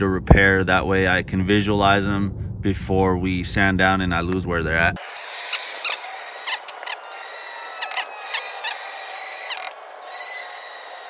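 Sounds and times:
electric drill motor whine: 5.0 - 11.0.

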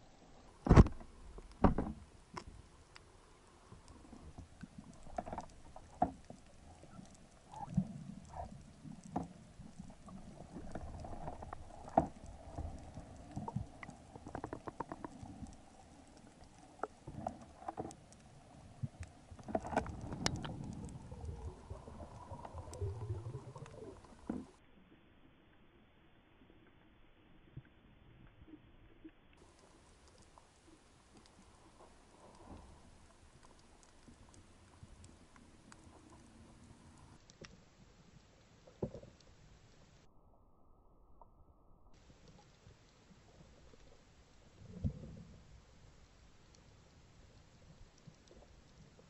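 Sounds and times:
faint steady hum: 0.0 - 49.0
underwater clicks and knocks: 0.6 - 2.6, 3.8 - 18.2, 18.8 - 24.6.

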